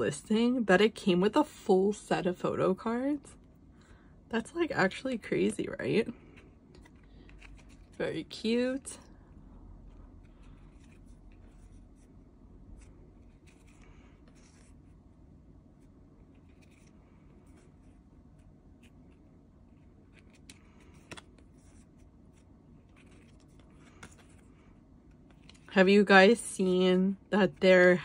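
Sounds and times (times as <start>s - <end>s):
photocards shuffled by hand: 19.8s - 25.7s.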